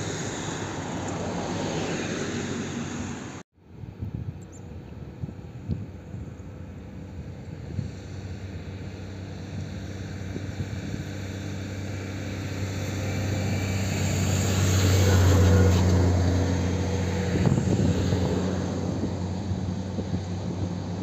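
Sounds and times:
jet engines rumbling: 0.0 - 3.4.

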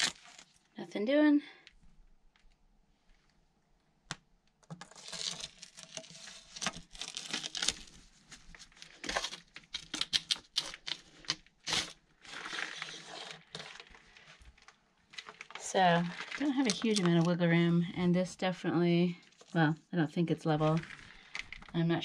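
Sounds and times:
plastic pipe scraping stone: 11.7 - 14.5.

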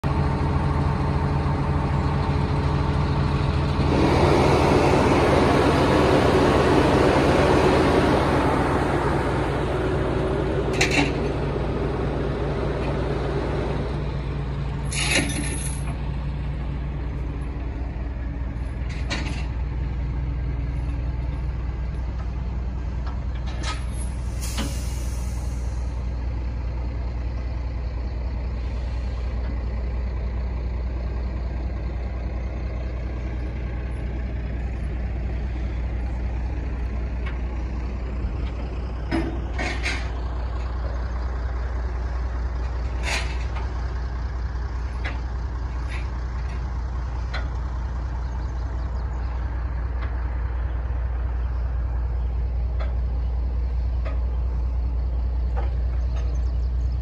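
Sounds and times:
diesel engine idling: 0.0 - 57.0
sharp hisses or clicks: 24.2 - 25.9.

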